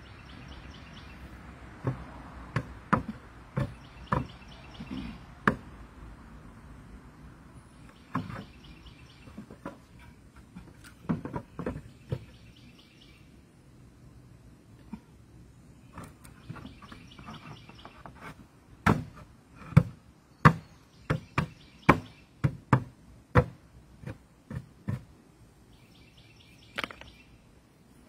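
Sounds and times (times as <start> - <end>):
birds chirping: 0.0 - 2.0, 3.5 - 5.5, 7.5 - 18.3, 20.1 - 22.4, 25.6 - 28.0
wooden boards knocking: 1.8 - 5.7, 9.3 - 12.3.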